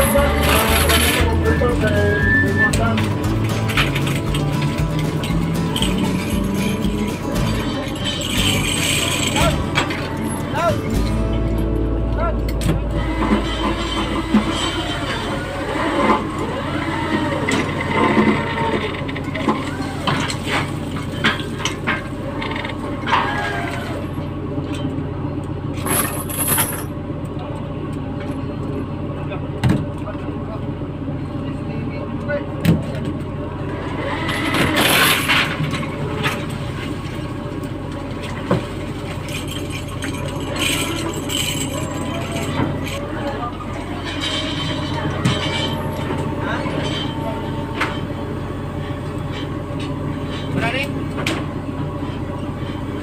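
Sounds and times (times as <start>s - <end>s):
clatter: 0.0s - 10.4s, 25.7s - 27.0s, 34.2s - 43.0s
boat engines droning: 0.0s - 53.0s.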